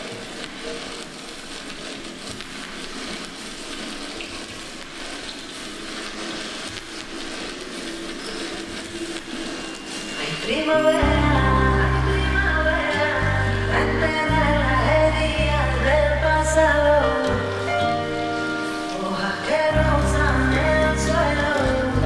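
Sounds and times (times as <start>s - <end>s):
rain hiss: 0.0s - 22.0s
faint low music tones: 8.3s - 22.0s.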